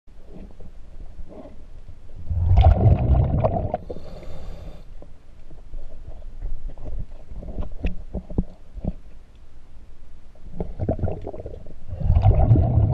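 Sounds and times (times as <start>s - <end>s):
muffled underwater knocks and clicks: 5.9s - 9.2s.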